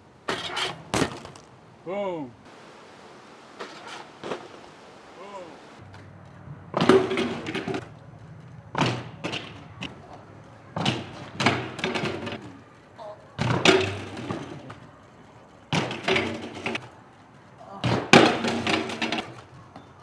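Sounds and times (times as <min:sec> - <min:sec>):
bike slamming onto concrete: 0:00.3 - 0:01.6, 0:06.7 - 0:07.9, 0:08.7 - 0:10.1, 0:10.7 - 0:12.6, 0:13.4 - 0:14.9, 0:15.7 - 0:16.9, 0:17.7 - 0:19.9.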